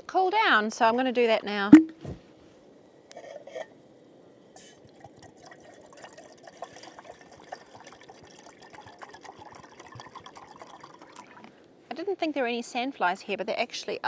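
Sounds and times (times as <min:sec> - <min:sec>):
water boiling in a pot: 0:04.2 - 0:11.6.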